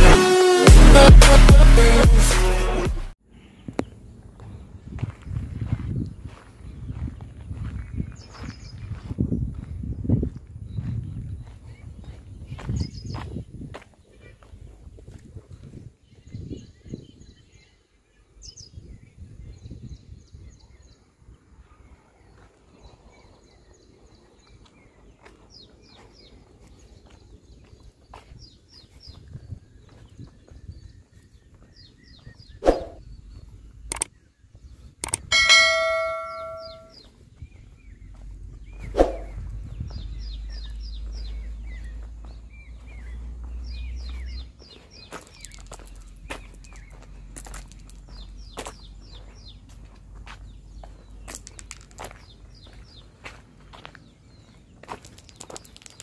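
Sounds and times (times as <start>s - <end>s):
small birds chirping: 3.3s - 56.0s
bell-like chime: 35.3s - 37.0s.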